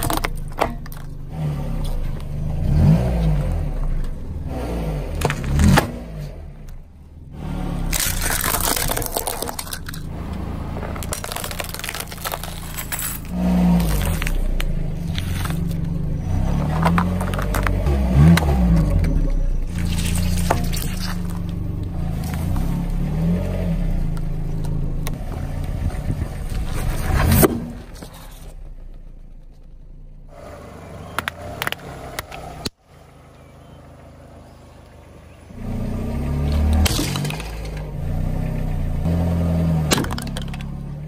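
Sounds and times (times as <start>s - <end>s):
plastic cracking under wheel: 0.0s - 1.2s, 7.9s - 10.1s, 10.9s - 16.0s, 16.6s - 19.2s, 39.8s - 41.0s
low engine and tyre rumble: 0.0s - 41.0s
sharp crunch: 5.1s - 6.8s, 7.4s - 23.4s, 36.4s - 38.0s.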